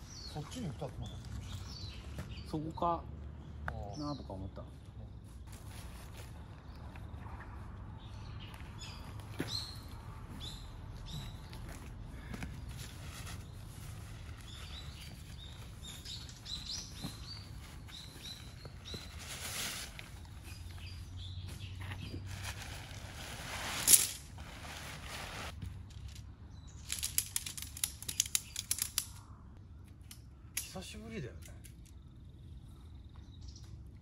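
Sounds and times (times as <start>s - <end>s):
small birds chirping: 0.0s - 22.7s, 25.9s - 34.0s
nylon tarp rustling: 5.3s - 6.6s, 12.7s - 20.9s, 21.7s - 25.6s
metal tent stakes clinking: 14.5s - 17.2s, 23.7s - 24.5s, 26.8s - 29.2s, 30.0s - 31.9s
tarp flapping: 18.4s - 20.5s, 22.2s - 25.6s.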